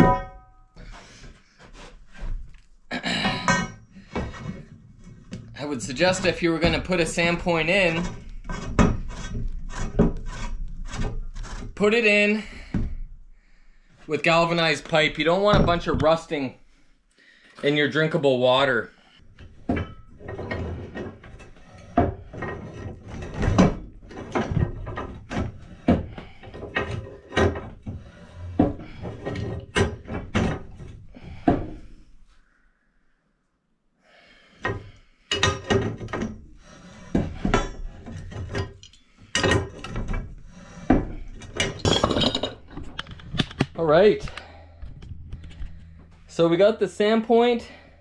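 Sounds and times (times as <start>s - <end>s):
metallic clicks and knocks of pipe: 0.0s - 11.9s, 19.3s - 31.9s, 34.6s - 46.4s.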